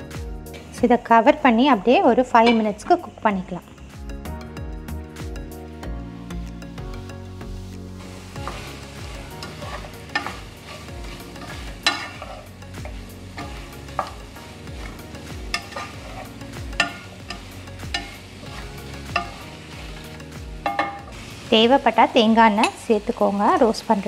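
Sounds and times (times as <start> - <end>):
chicken sizzling in frying pan: 7.4 - 24.0
spatula scraping pan: 8.0 - 21.3
spatula knocking against pan: 15.4 - 19.4, 20.6 - 21.1.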